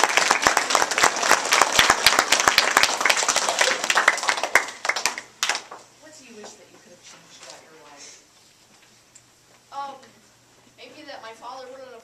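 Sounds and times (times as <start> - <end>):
children applauding: 0.0 - 5.8.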